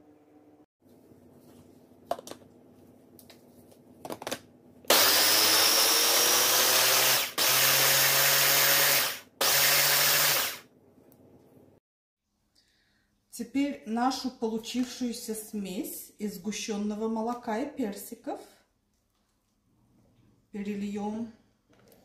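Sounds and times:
electric blender running: 4.9s - 10.6s.

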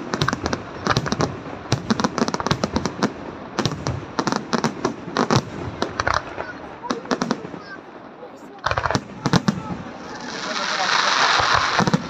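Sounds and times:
firework shells bursting: 8.6s - 12.0s.

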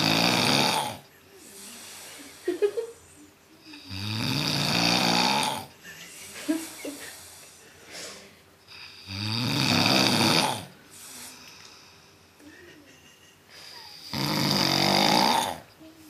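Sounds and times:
man snoring: 0.0s - 1.0s, 3.8s - 5.7s, 8.7s - 10.8s, 13.9s - 15.7s
soft breath: 6.2s - 8.5s.

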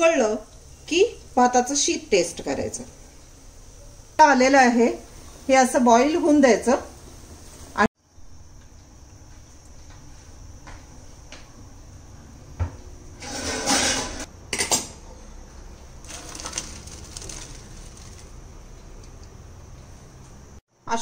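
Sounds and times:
water pouring into colander: 16.0s - 18.4s.

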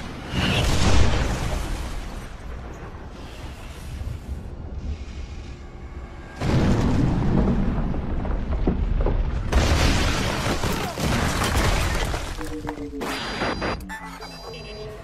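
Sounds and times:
film score: 0.0s - 15.0s
heavy rumble: 2.0s - 9.8s
explosion blast: 6.4s - 11.3s
debris crashing down: 6.4s - 12.7s.

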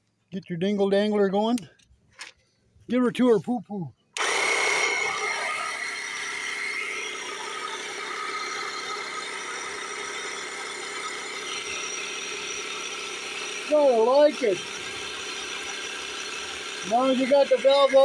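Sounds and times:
air pump whirring: 4.2s - 18.0s.

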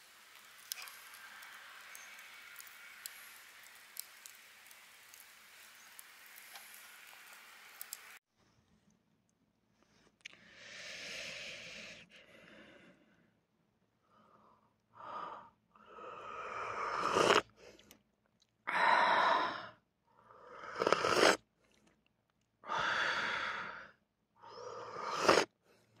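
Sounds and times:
person breathing out: 22.6s - 25.5s.

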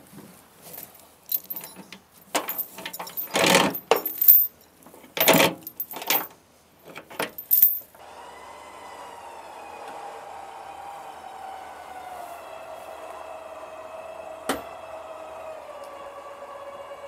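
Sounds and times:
metal rigging clinking and rattling: 0.6s - 7.9s
electric winch whining: 8.0s - 17.0s.

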